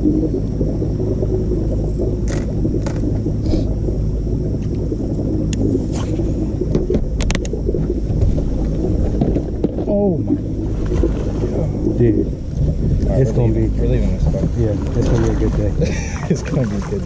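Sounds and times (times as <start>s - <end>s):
electric trolling motor humming: 0.0s - 17.0s.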